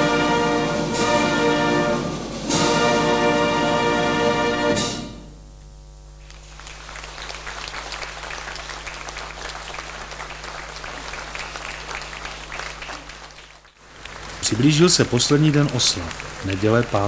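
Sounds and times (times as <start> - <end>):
audience applauding: 6.2 - 17.0.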